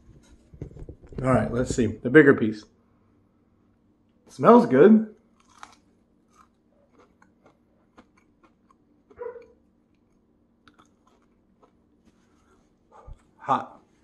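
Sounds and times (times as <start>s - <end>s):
person chewing crunchy food: 5.2s - 13.4s.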